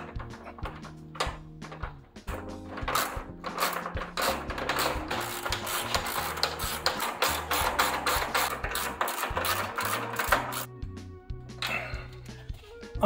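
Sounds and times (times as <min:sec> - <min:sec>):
screwdriver clattering and clicking: 0:00.0 - 0:10.7.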